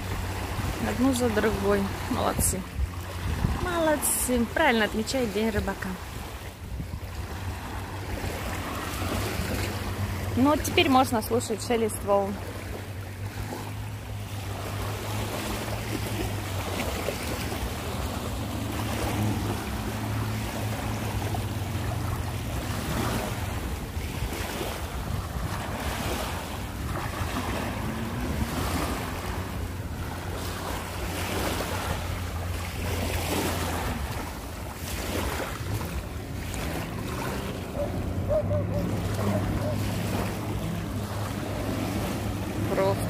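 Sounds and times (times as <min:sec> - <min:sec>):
waves washing onto pebbles: 0:12.0 - 0:43.0.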